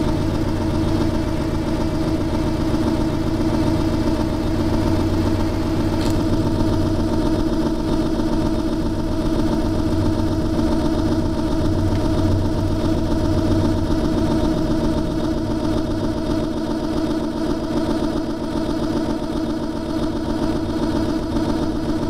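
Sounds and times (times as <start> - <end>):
accordion drone chord: 9.6 - 16.7.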